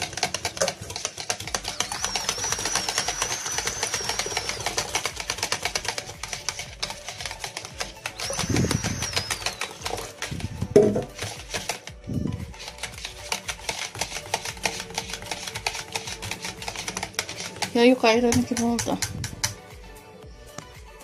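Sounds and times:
whisk clicking against bowl: 0.0 - 19.6
high wavering whistle: 8.2 - 10.0.

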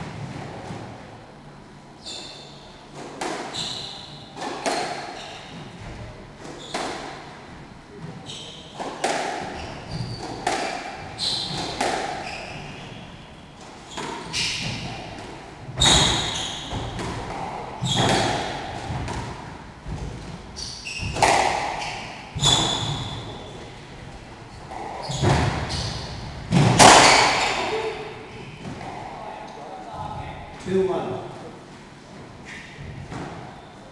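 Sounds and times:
shoe squeaks on wooden floor: 2.0 - 2.6, 3.5 - 5.8, 6.5 - 6.9, 8.2 - 8.8, 9.5 - 13.2, 13.9 - 15.1, 15.8 - 18.6, 20.5 - 23.7, 24.7 - 26.3
squash ball hitting rackets and walls: 2.0 - 29.2, 32.5 - 33.6.

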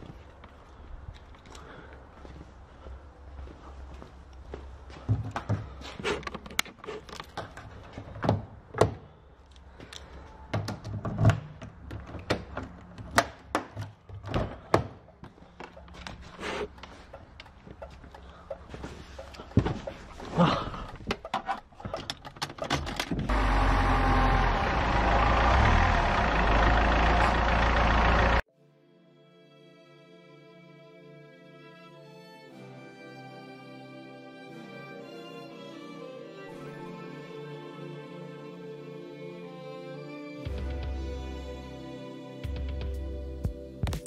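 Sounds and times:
knocks and clicks of handling: 5.1 - 23.3.

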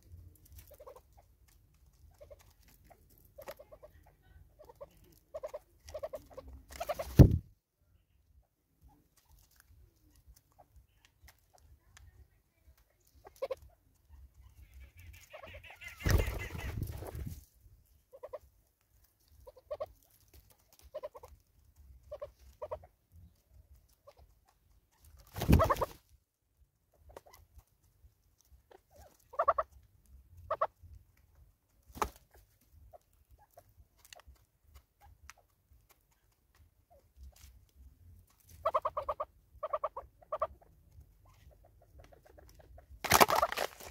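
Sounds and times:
birds clucking: 3.4 - 7.5, 14.3 - 17.4, 25.3 - 26.0, 38.6 - 40.7, 41.6 - 43.9.

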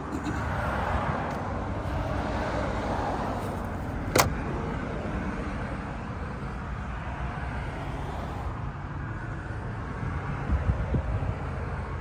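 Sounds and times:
road traffic noise: 0.0 - 12.0
hood latch click: 4.0 - 4.4.

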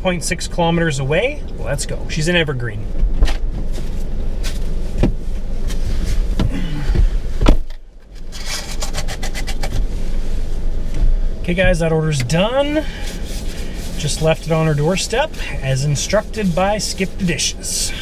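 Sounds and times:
car engine running: 0.0 - 18.0
car door shutting: 2.9 - 7.8
hand wipe rustling: 12.3 - 17.5.

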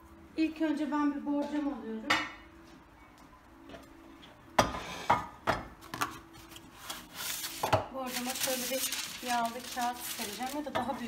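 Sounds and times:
rustling: 6.9 - 11.0.

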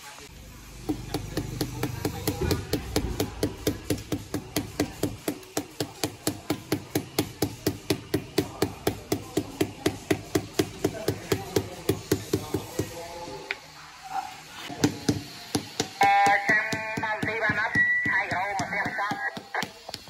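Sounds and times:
rubber mallet tapping ceramic tile: 15.0 - 20.0.

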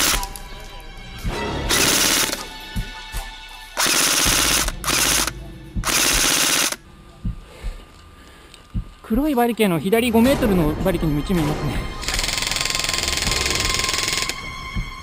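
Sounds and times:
airsoft gun full-auto bursts: 0.0 - 0.2, 1.7 - 2.4, 3.8 - 6.8, 12.0 - 14.4.

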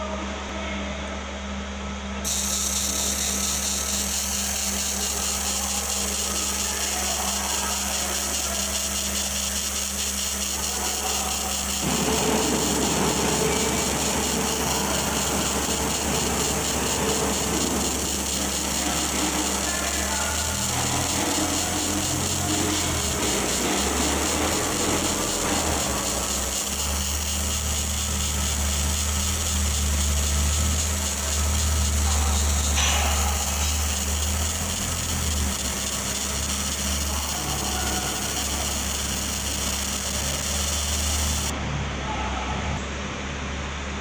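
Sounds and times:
laser marking machine buzz: 2.2 - 41.5.

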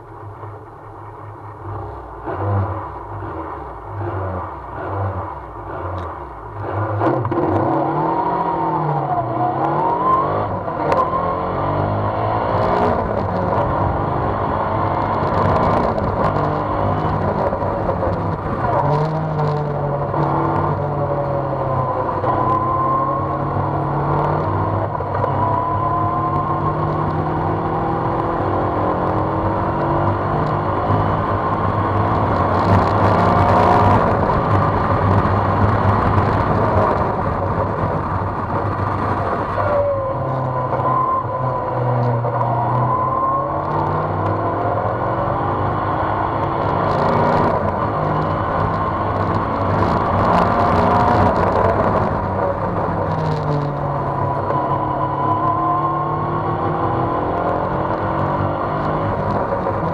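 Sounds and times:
race car engine revving: 1.5 - 59.9
wind rush on microphone: 29.0 - 41.2.

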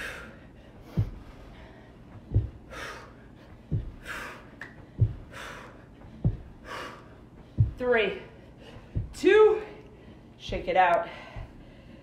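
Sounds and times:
feet thudding on carpet: 0.8 - 3.0, 3.6 - 6.8, 8.7 - 9.5.

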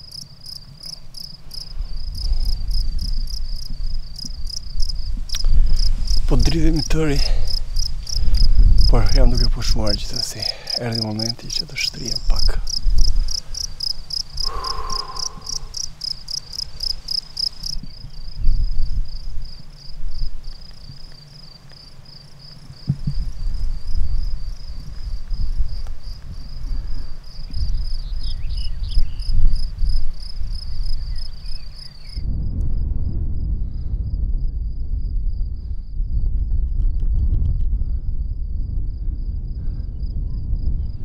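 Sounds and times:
low rumbling noise: 0.0 - 20.5, 32.2 - 41.0
crickets chirping: 0.0 - 32.3, 34.4 - 36.0, 37.9 - 41.0.

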